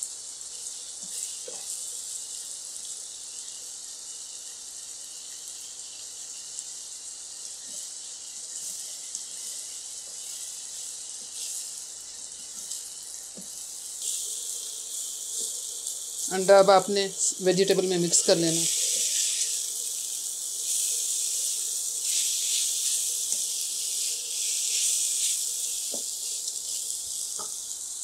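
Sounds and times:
egg sizzling in oil: 0:00.0 - 0:28.0
spatula scraping pan: 0:17.5 - 0:19.6, 0:20.6 - 0:27.6.

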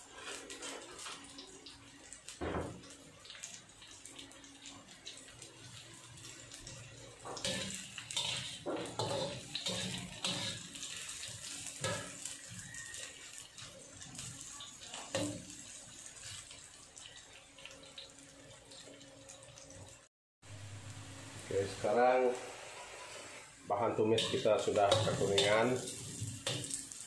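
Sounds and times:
aromatics sizzling in hot oil: 0:00.0 - 0:27.0
metal spatula scraping a wok: 0:07.4 - 0:12.3, 0:24.1 - 0:26.8.

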